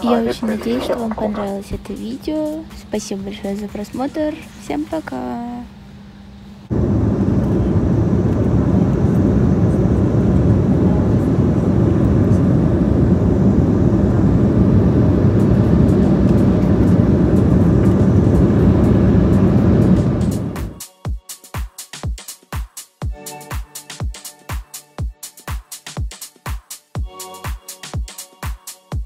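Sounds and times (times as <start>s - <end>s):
low hum: 2.7s - 20.8s
jet cabin engine and airflow roar: 6.2s - 20.8s.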